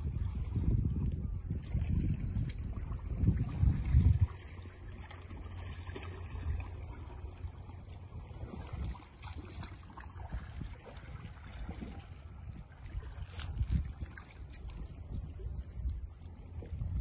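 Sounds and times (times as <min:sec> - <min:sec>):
wind rumbling on microphone: 0:00.0 - 0:17.0
small waves lapping on rocks: 0:01.4 - 0:17.0.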